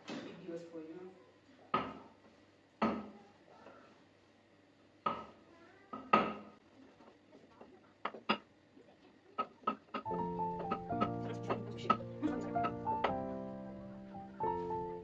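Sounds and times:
utensils knocking against pots: 9.4 - 13.2.

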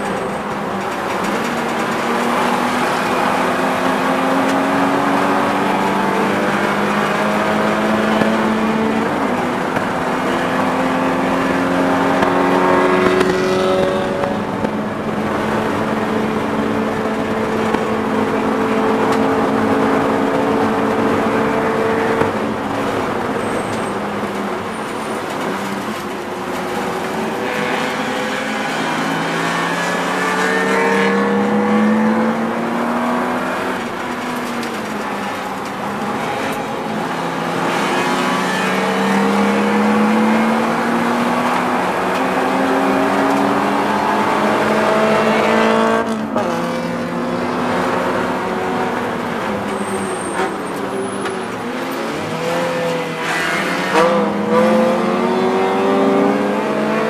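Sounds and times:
race car engine accelerating: 0.0 - 23.8, 26.6 - 57.0.

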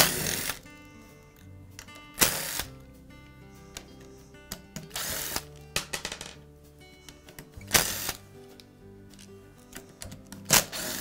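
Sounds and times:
cordless driver spinning: 0.0 - 0.6, 4.9 - 5.5, 7.7 - 8.2
background music with sustained tones: 0.0 - 11.0.

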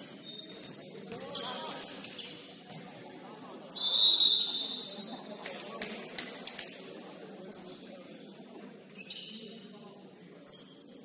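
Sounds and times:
sneakers squeaking on court: 0.0 - 5.1, 8.9 - 9.6.

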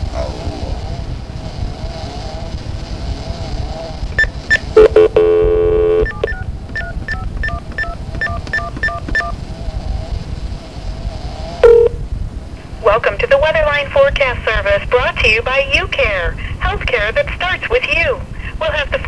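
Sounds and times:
steady dial tone: 4.2 - 9.4, 11.6 - 12.0
telephone line hiss: 4.2 - 9.4, 11.6 - 12.0
touch-tone digits dialing: 4.2 - 9.4, 11.6 - 12.0.

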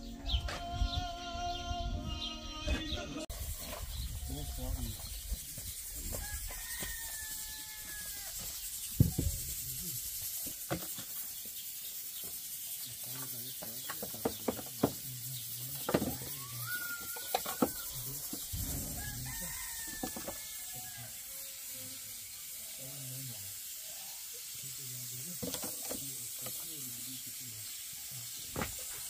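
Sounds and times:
rooster crowing: 6.1 - 8.6, 16.1 - 21.6
wooden logs knocking: 13.6 - 15.0, 15.8 - 16.3.

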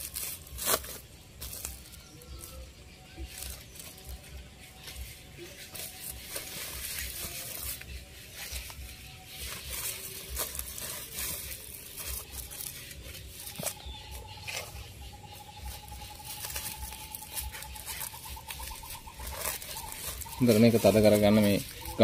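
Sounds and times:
plastic sack crackling: 0.0 - 22.0
soil scraping and patting: 0.0 - 22.0.

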